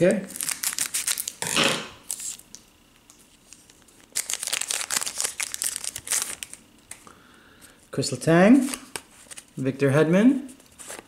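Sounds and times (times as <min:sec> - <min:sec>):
plastic wrapper crinkling: 0:00.2 - 0:01.4, 0:02.0 - 0:07.0.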